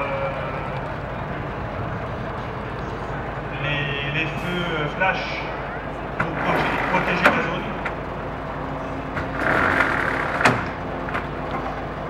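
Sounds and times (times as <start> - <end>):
truck engine idling: 0.0 - 12.0
roller shutter rattling slide: 9.2 - 11.3.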